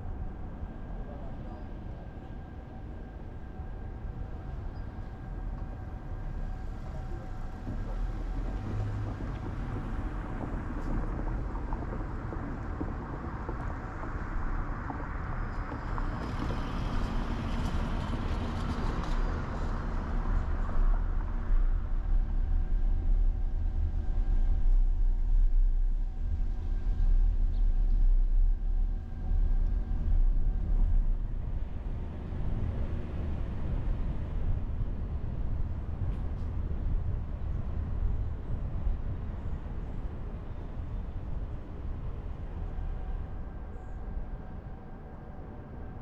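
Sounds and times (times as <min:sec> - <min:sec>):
car road and engine rumble: 0:00.0 - 0:46.0
rush of tyre and traffic noise: 0:00.0 - 0:46.0
faint steady hum: 0:12.6 - 0:46.0.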